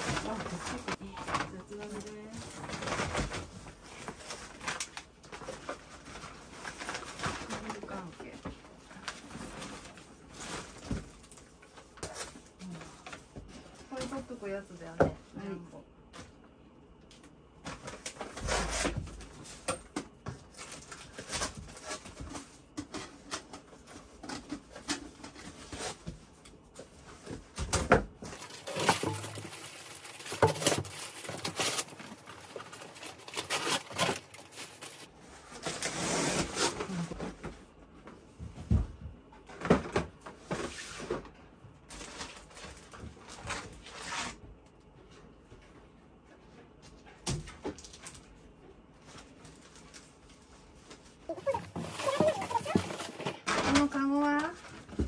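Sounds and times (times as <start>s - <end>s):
plastic bags and paper rustling: 0.0s - 15.6s, 17.6s - 37.5s, 39.5s - 44.4s, 46.8s - 55.0s
small items knocking and clattering: 27.3s - 35.1s, 51.3s - 55.0s.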